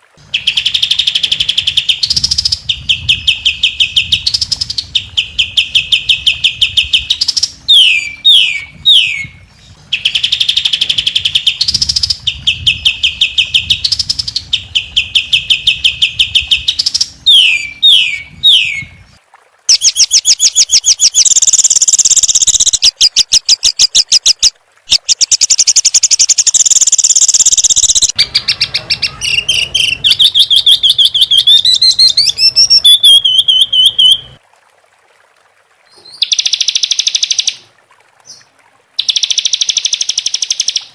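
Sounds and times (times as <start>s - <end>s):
bird trills: 19.7s - 34.2s, 39.0s - 40.9s
downward-slurred bird whistles: 23.9s - 34.2s.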